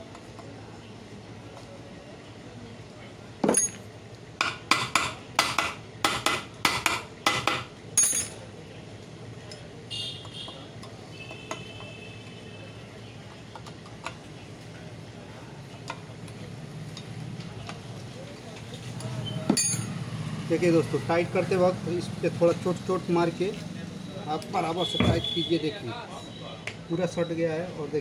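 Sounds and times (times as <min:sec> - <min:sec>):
metal tools clinking on steel: 0:03.4 - 0:03.9, 0:08.0 - 0:08.4, 0:19.0 - 0:20.0.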